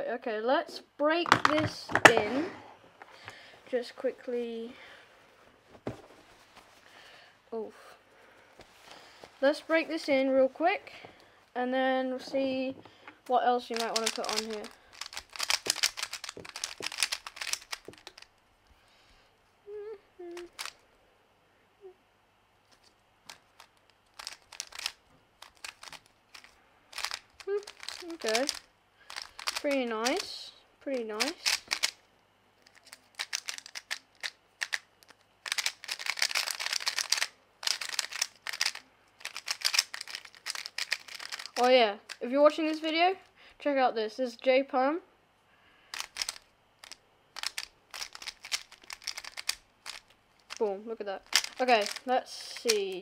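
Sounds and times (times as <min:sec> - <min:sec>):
plastic puzzle cube clicking: 0:13.7 - 0:18.3, 0:20.3 - 0:20.8, 0:22.8 - 0:30.3, 0:31.0 - 0:32.0, 0:32.6 - 0:42.2, 0:45.9 - 0:50.6, 0:51.2 - 0:52.9
person humming: 0:19.7 - 0:20.6.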